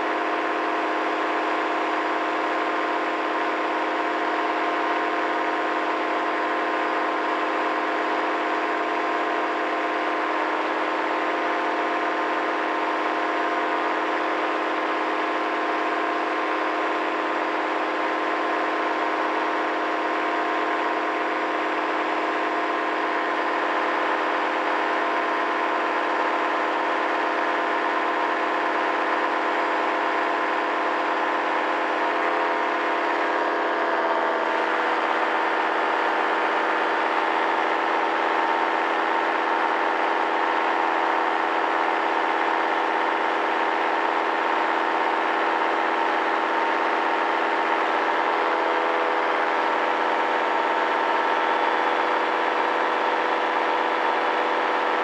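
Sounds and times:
paramotor engine drone: 0.0 - 55.0.

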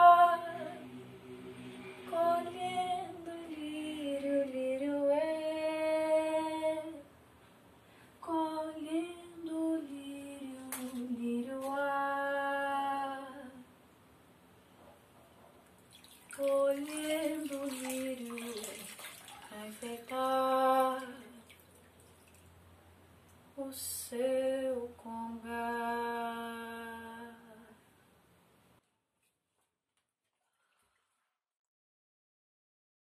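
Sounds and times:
woman singing unaccompanied: 0.0 - 1.0, 2.0 - 7.1, 8.2 - 13.7, 16.3 - 21.5, 23.6 - 27.8.

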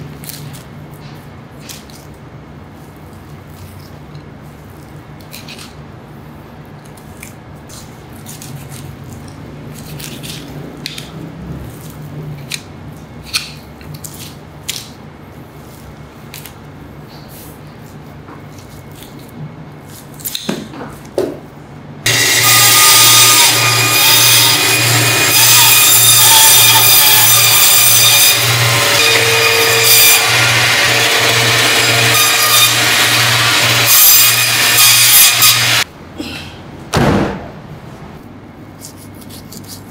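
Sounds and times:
meat band saw cutting: 22.1 - 35.9.

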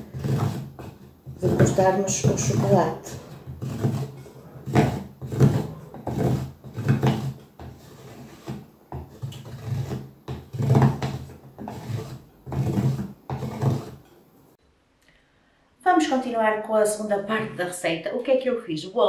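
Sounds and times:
cookie cutter scraping chocolate: 0.0 - 14.2.

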